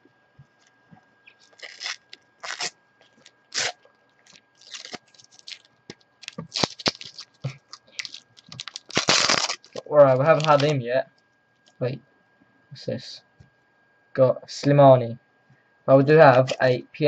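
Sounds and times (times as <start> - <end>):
foil wrapper crinkling: 1.3 - 10.8.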